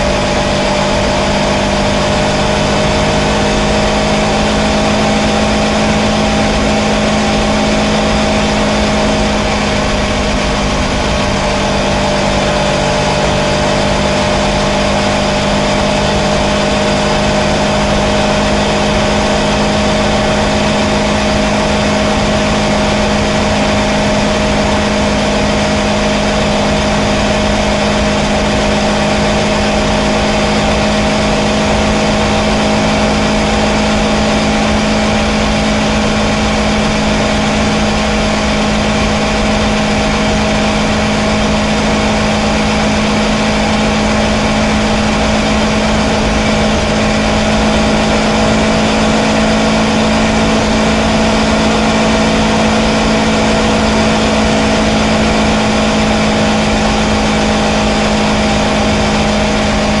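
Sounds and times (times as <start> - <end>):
motorcycle engine cruising: 0.0 - 60.0
wind and road noise: 0.0 - 60.0.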